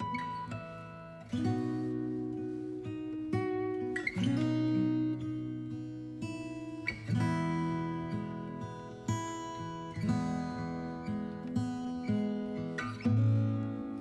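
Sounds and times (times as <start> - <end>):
acoustic guitar chords: 0.0 - 14.0.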